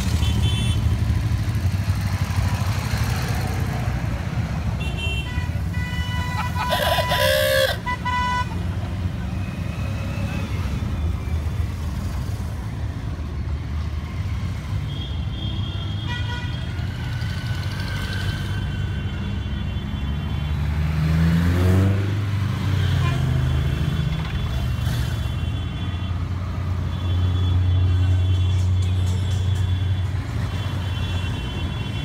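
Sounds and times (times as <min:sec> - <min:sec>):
motorcycle engines passing: 0:00.0 - 0:14.8, 0:16.6 - 0:18.9, 0:20.4 - 0:25.4.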